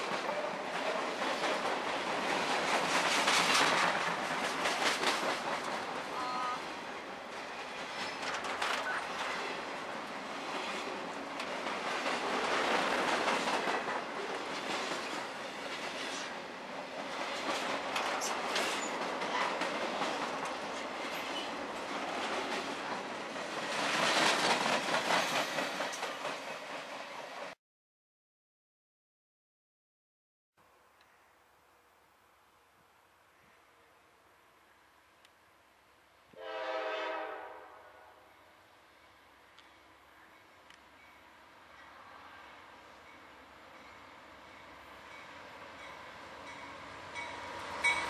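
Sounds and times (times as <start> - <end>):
wheels clicking over rail joints: 0.0 - 6.1, 7.6 - 26.8
freight train rumbling and rattling: 0.0 - 27.6.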